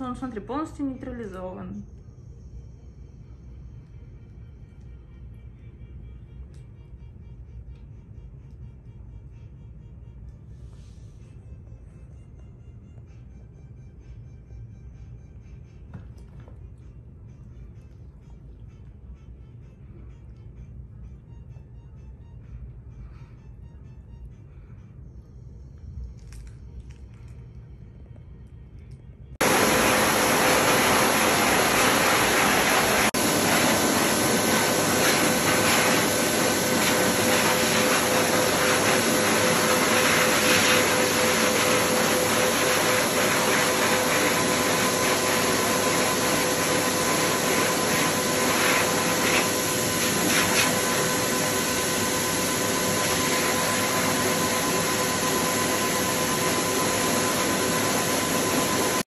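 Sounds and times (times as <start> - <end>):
pet dryer blowing air: 29.4 - 59.0.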